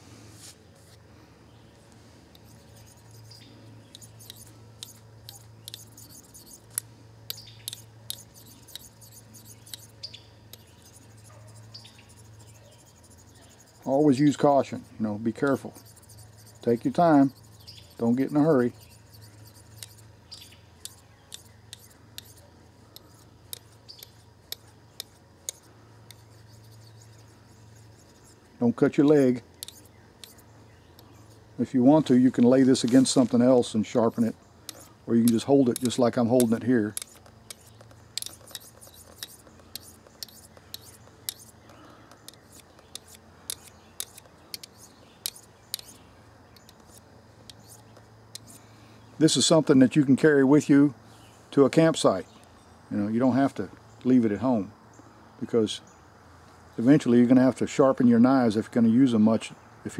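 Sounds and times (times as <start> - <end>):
knife blade on sharpening rod: 2.4 - 9.9
knife scraping on sharpening rod: 2.4 - 14.0, 15.8 - 28.4, 29.1 - 30.5, 34.7 - 41.6, 42.2 - 46.0.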